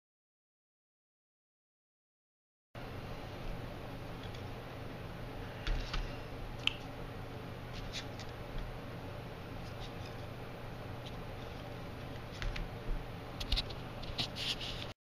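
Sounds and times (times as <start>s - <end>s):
steady low hum: 2.8s - 14.9s.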